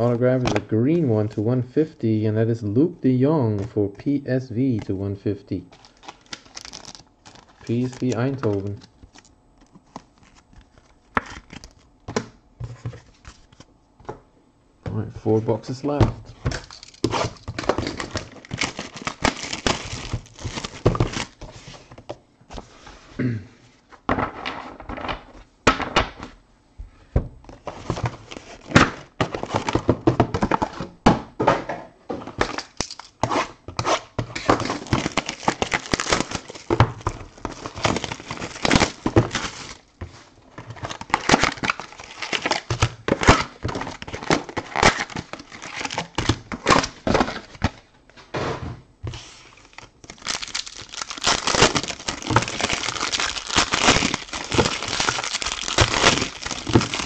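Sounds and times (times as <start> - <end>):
plastic wrapping crinkling and tearing: 5.8 - 12.0, 16.6 - 21.4, 34.4 - 39.9, 40.5 - 47.7, 49.2 - 57.0.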